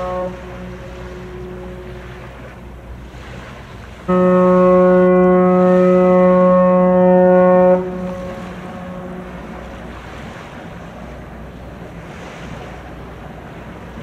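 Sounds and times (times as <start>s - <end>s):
ship whistle blast: 0.0s - 2.5s, 4.0s - 9.9s
water noise: 0.0s - 14.0s
wind: 0.0s - 14.0s.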